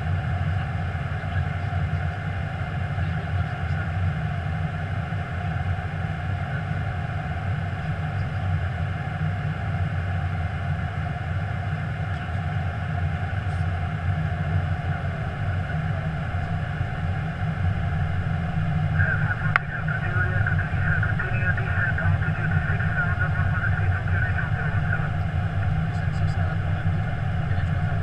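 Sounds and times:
aircraft cockpit hum: 0.0s - 28.0s
radio voice: 18.8s - 28.0s.

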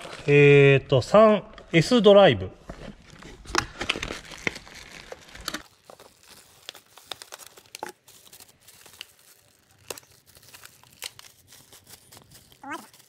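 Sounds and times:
plastic bags crinkling: 3.0s - 13.0s.

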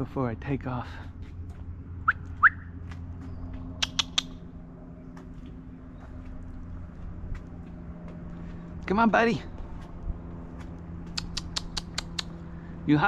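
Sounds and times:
steady low hum: 0.0s - 13.0s
kissing squeaks with lips: 3.8s - 4.4s, 11.1s - 12.4s.

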